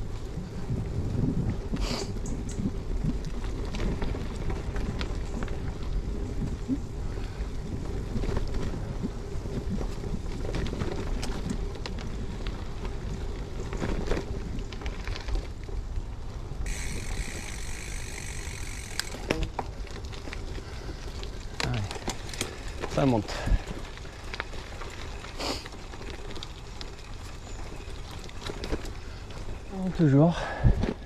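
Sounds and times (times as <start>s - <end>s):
wind on microphone: 0.0s - 11.6s
bike clicks and rattles: 0.0s - 31.0s
bike tyre noise on gravel: 0.0s - 31.0s
high buzz: 16.7s - 19.5s.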